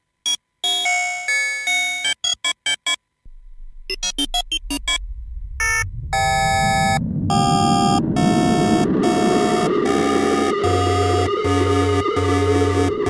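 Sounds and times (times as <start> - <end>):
low rumble: 3.3 - 13.0
synthesizer chords: 7.4 - 13.0.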